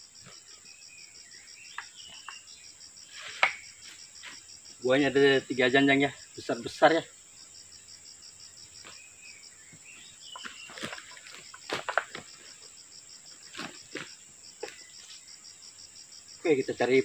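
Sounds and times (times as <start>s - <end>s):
insect chirping: 0.0s - 17.0s
fruit bunches kicked along ground: 10.3s - 12.6s, 13.5s - 14.9s.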